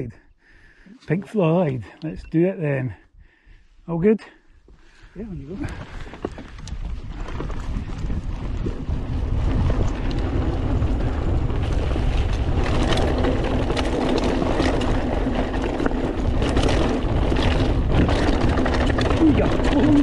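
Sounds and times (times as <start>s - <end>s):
wind buffeting microphone: 4.8s - 20.0s
tyres rolling over dirt: 5.4s - 20.0s
bike clattering over bumps: 5.6s - 20.0s.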